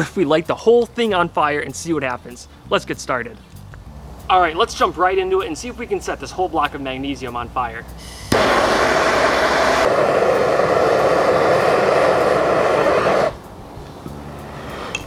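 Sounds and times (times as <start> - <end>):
blowtorch flame hissing: 8.0 - 13.4.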